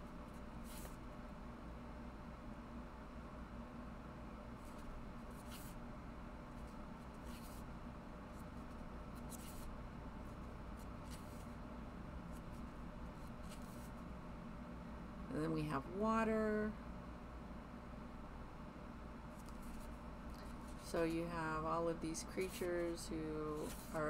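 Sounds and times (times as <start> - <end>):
low steady hum: 0.0 - 24.0
book pages flipping: 8.7 - 9.7, 11.1 - 11.5, 13.4 - 14.0, 19.4 - 20.8, 23.6 - 24.0.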